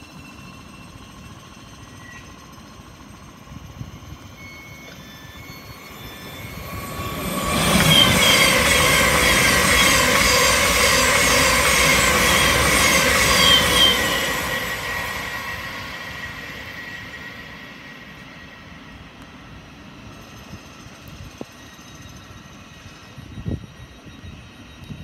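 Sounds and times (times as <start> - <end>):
high squeals: 0.0 - 19.2
train wheels rushing on rail: 0.0 - 25.0
electric whine: 0.1 - 19.6.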